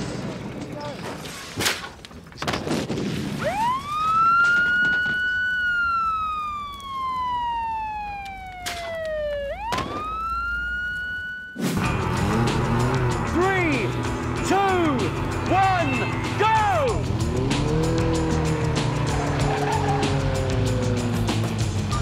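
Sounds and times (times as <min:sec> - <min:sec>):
siren wailing: 0:03.4 - 0:11.8.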